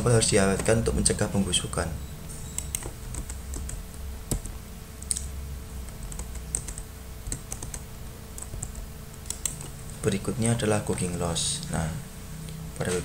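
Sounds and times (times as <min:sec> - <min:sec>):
steady low hum: 0:00.0 - 0:13.0
computer keys typing: 0:02.4 - 0:10.0.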